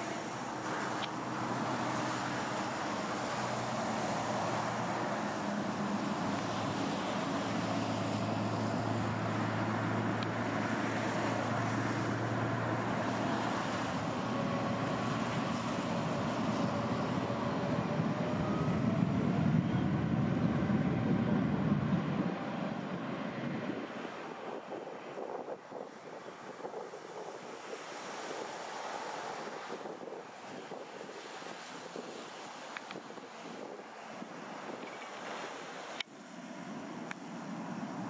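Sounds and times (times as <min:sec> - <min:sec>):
rain hiss: 0:00.0 - 0:17.5, 0:26.5 - 0:38.0
jet airliner engines passing: 0:00.0 - 0:27.3.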